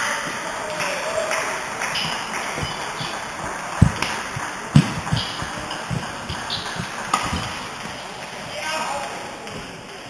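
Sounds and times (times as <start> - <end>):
racket striking shuttlecock: 0.8 - 8.7
footfalls on wooden floor: 1.4 - 8.6
heavy thuds: 1.4 - 8.6.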